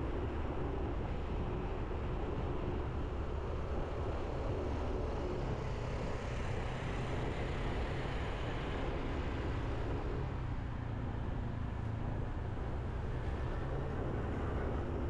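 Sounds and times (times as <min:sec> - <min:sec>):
road rumble: 0:00.0 - 0:15.0
wind: 0:00.0 - 0:15.0.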